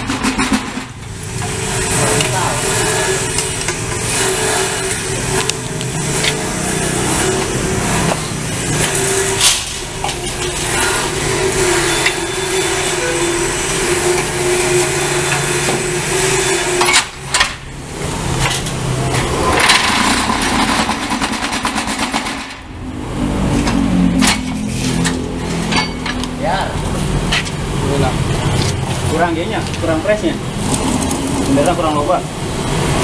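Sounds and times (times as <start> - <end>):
vibrating concrete press buzzing rattle: 0.0 - 23.0, 23.9 - 33.0
sharp metal knocks: 23.7 - 26.3.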